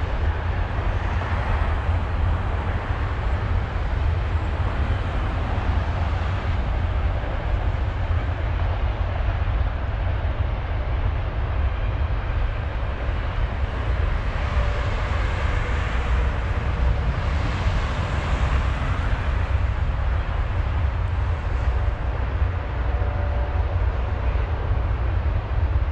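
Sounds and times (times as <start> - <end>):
road traffic noise: 0.0 - 25.9
wind buffeting microphone: 0.0 - 25.9.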